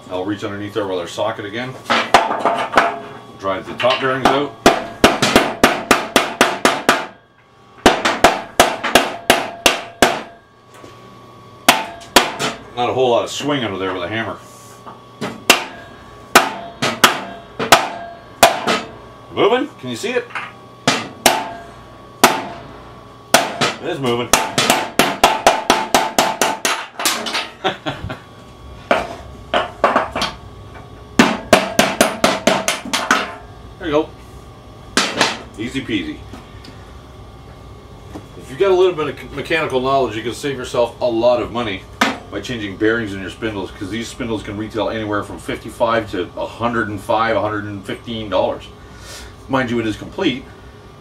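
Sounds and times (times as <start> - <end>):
hammer striking metal: 3.9 - 7.2, 7.8 - 10.4, 11.7 - 12.6, 16.4 - 18.9, 20.9 - 22.6, 23.4 - 27.4.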